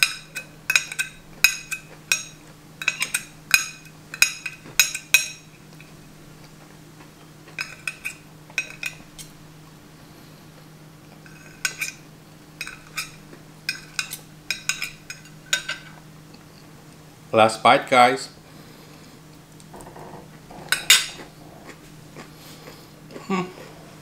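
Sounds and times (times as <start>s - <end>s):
cutlery scraping on ceramic plate: 20.6s - 21.8s.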